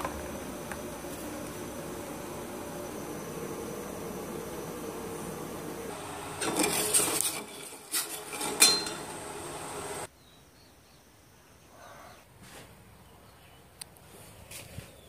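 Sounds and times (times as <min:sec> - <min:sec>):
steady hum: 0:00.0 - 0:10.1
metal spoon scraping pot: 0:06.4 - 0:09.1.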